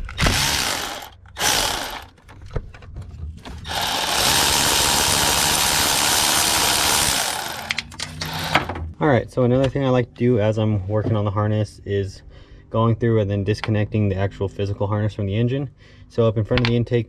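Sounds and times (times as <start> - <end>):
power tool spinning off bolt: 0.1 - 2.1, 3.6 - 8.7.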